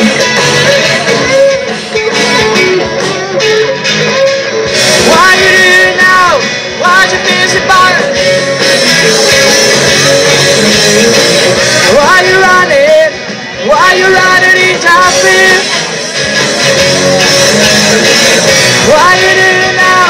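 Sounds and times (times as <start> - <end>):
bending held guitar notes: 0.0 - 20.0
live rock band playing: 0.0 - 20.0.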